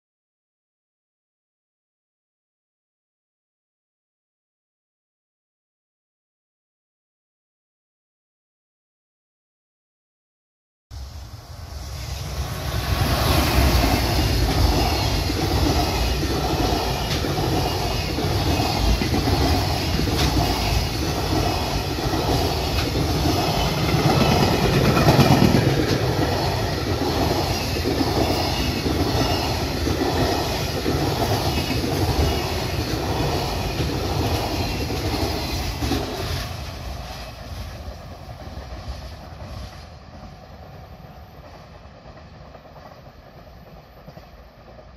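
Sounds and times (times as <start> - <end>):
train wheels clattering over rail joints: 13.7 - 36.4.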